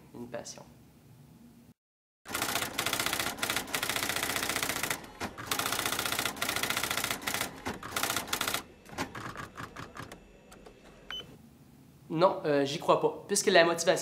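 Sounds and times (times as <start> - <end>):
rapid typewriter keystrokes: 2.3 - 10.9.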